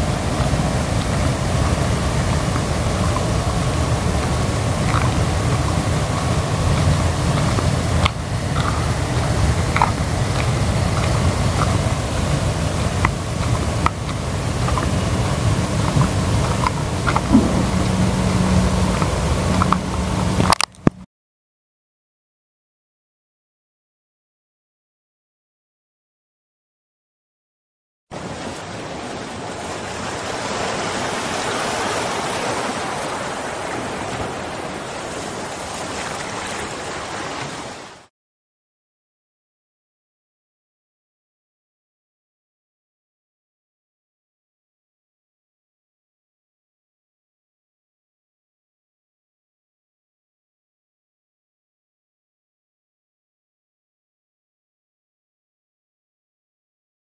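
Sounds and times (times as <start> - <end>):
low rushing noise: 0.0 - 21.0.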